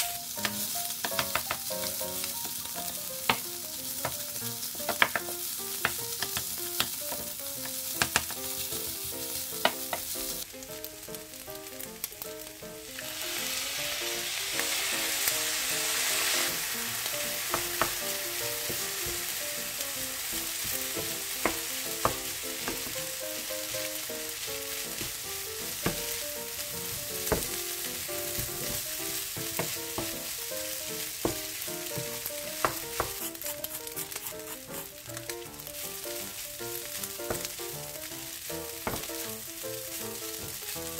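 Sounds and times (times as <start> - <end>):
rice sizzling in a frying pan: 0.0 - 40.9.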